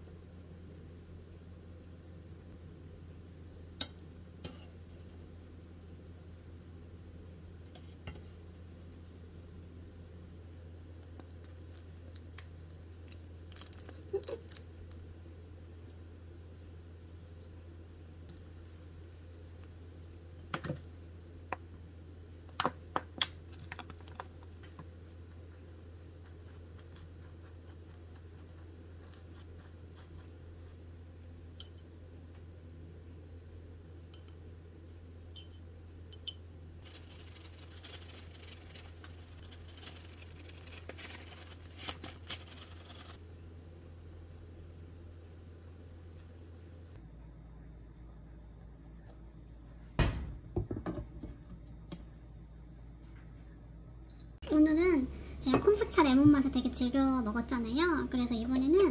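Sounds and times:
low steady hum: 0.0s - 58.9s
plastic bag crackling rustle: 36.8s - 43.2s.

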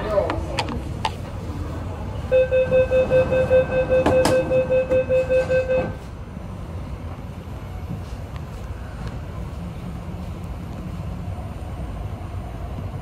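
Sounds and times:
low rumble of standing train: 0.0s - 13.0s
rapid high door warning beeps: 2.3s - 6.0s.

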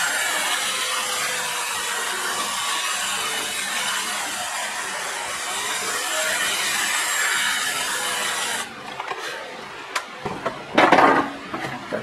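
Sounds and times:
small electric drill boring: 0.0s - 8.7s.

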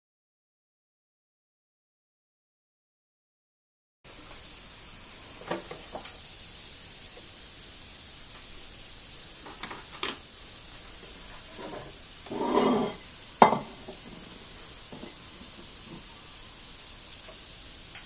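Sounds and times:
food sizzling on a grill: 4.1s - 18.0s.

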